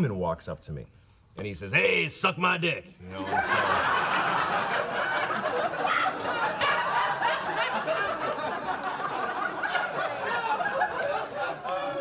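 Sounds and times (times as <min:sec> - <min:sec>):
audience laughing: 0:03.2 - 0:12.0.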